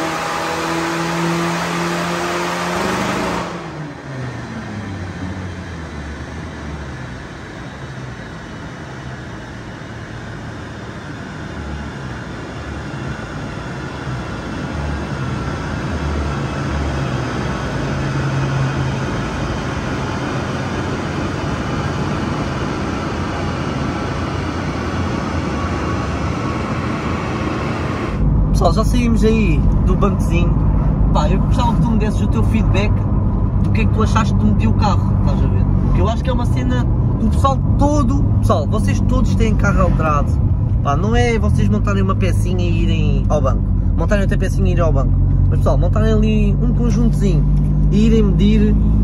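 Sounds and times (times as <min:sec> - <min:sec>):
diesel engine revs falling: 0:00.0 - 0:07.3
engine and dyno rollers rumbling: 0:00.0 - 0:49.0.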